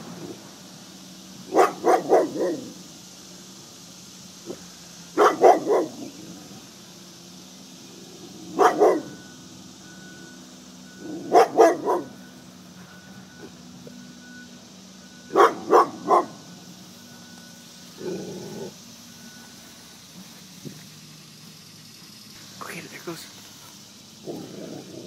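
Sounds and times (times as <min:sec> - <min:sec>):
dog barking: 0:01.5 - 0:02.7, 0:05.2 - 0:06.1, 0:08.5 - 0:09.2, 0:11.2 - 0:12.2, 0:15.3 - 0:16.4.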